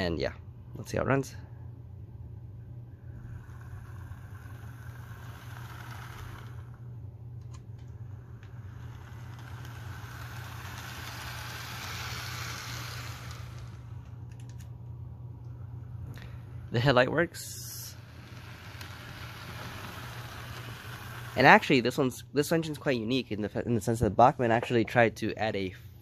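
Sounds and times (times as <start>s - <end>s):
low hum: 0.0s - 26.0s
model train motor whirring: 3.1s - 14.6s, 15.6s - 22.0s.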